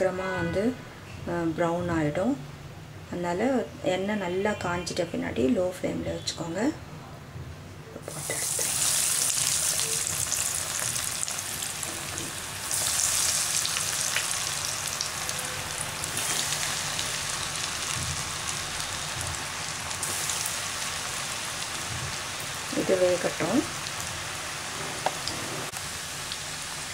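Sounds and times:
food sizzling in hot oil: 0:08.0 - 0:26.9.

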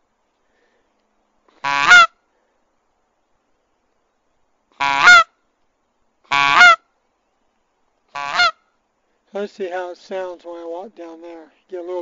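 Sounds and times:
goose call honks: 0:01.6 - 0:02.2, 0:04.8 - 0:05.4, 0:06.3 - 0:06.8, 0:08.1 - 0:08.6.

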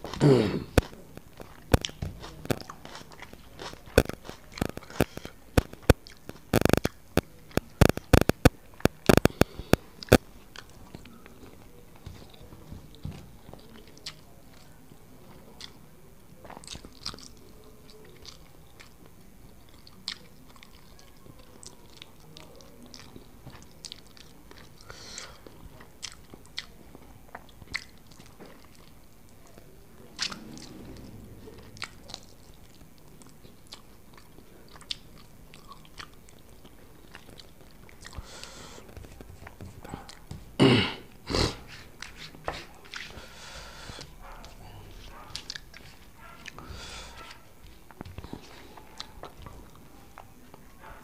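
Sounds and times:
man chewing food: 0:00.0 - 0:51.0.

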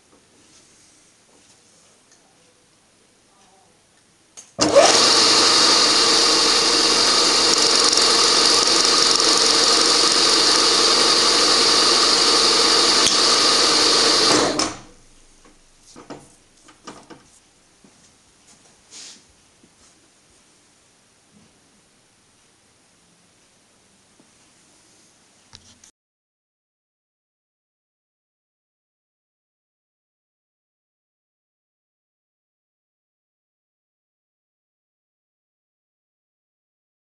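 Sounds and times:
milling machine spindle running: 0:04.6 - 0:15.2.

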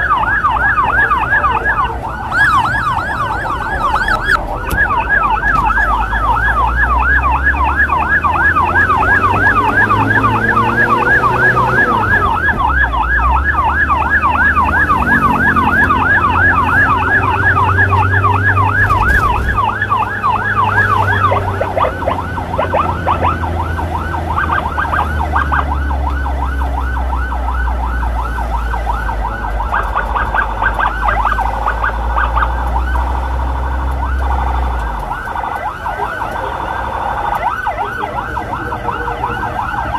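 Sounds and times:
electronic emergency siren: 0:00.0 - 0:39.9
motorbike engine revving: 0:06.2 - 0:12.8.

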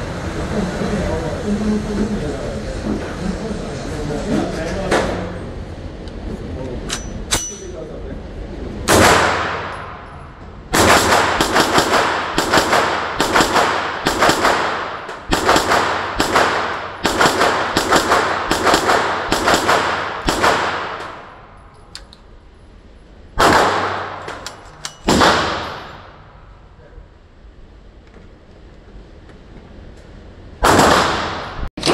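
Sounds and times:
pistol shots ringing indoors: 0:08.9 - 0:22.1, 0:23.4 - 0:26.5, 0:30.6 - 0:31.9.

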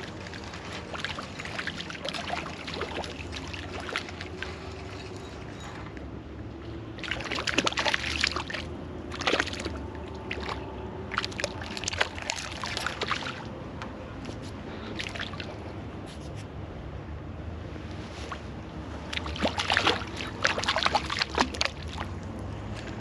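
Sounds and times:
fish splashing at water surface: 0:00.0 - 0:05.6, 0:06.8 - 0:13.5, 0:14.8 - 0:15.7, 0:18.0 - 0:22.3.

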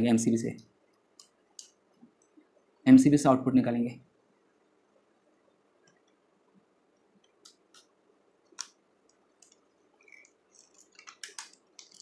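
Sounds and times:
faint clicks of small tools: 0:00.9 - 0:02.4.

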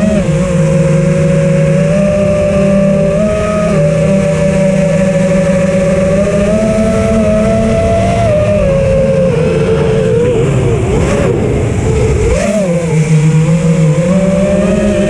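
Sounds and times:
drone motors whining: 0:00.0 - 0:15.0.

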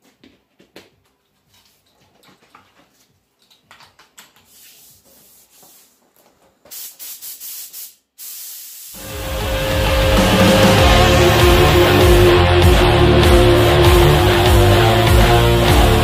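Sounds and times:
air hose rustling and clicking: 0:01.0 - 0:08.4
paint spray gun hissing: 0:06.7 - 0:09.1.

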